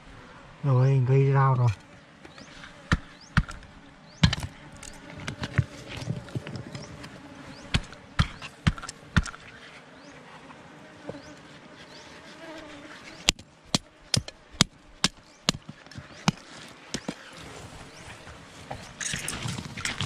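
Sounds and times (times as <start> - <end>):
faint buzz of bees: 0.0 - 20.0
metal tool scraping rock: 18.9 - 20.0.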